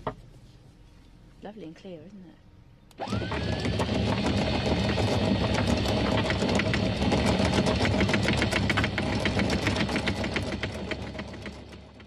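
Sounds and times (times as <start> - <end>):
fast irregular mechanical clicking: 2.9 - 12.0
boat engine running: 3.0 - 12.0.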